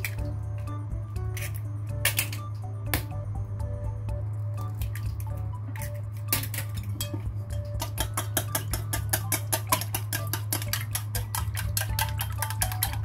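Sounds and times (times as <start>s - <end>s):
steady low hum: 0.0s - 13.0s
chopsticks beating eggs in metal bowl: 6.5s - 13.0s
egg cracking into bowl: 7.8s - 13.0s.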